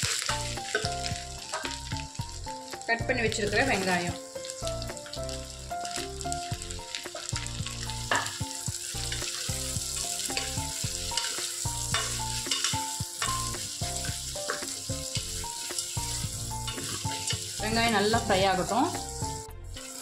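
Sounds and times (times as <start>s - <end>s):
background music: 0.0s - 20.0s
onions sizzling in oil: 0.0s - 20.0s
spatula scraping a pot: 10.2s - 18.1s.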